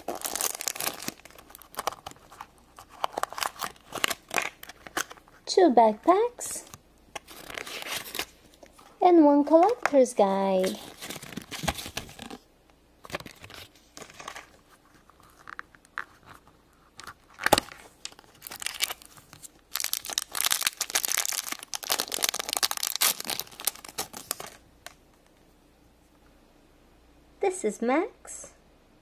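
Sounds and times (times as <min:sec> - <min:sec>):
foil crinkling and tearing: 0:00.0 - 0:05.2, 0:07.3 - 0:08.4, 0:10.6 - 0:12.4, 0:17.1 - 0:24.6
paper and plastic crinkling: 0:00.0 - 0:05.4, 0:06.6 - 0:12.4, 0:13.0 - 0:25.0.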